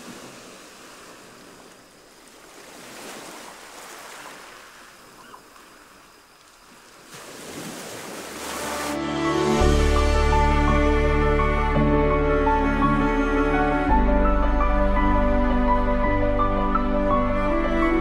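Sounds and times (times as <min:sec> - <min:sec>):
surf breaking on a beach: 0:00.0 - 0:05.4.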